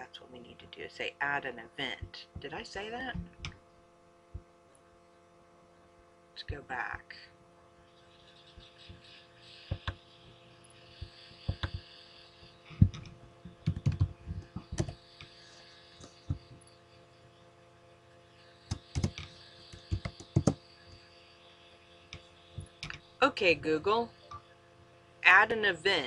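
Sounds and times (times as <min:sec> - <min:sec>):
faint electrical hum: 0:00.0 - 0:26.0
laptop keyboard typing: 0:08.3 - 0:16.7, 0:18.7 - 0:20.6.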